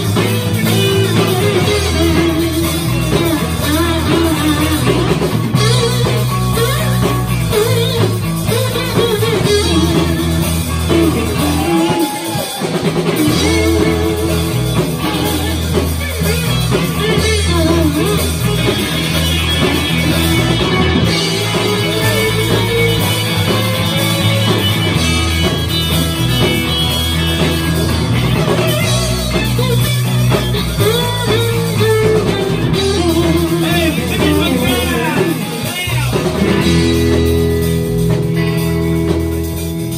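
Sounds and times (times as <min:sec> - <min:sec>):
rock band playing: 0:00.0 - 0:39.9
man singing: 0:13.2 - 0:15.7, 0:33.0 - 0:36.5.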